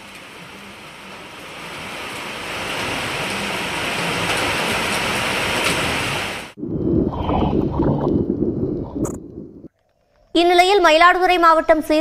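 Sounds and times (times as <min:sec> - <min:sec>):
rain falling on trees: 0:00.0 - 0:06.6.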